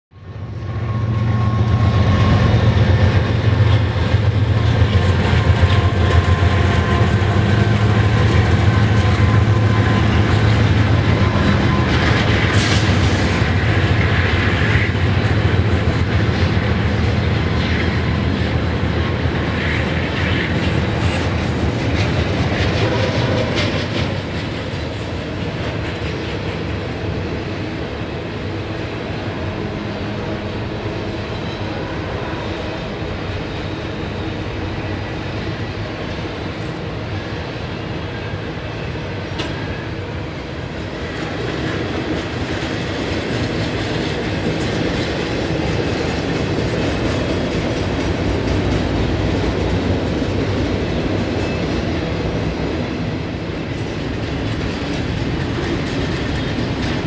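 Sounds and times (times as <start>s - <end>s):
freight train rumbling past: 0.1s - 57.0s
wheels clattering on rail joints: 38.7s - 57.0s.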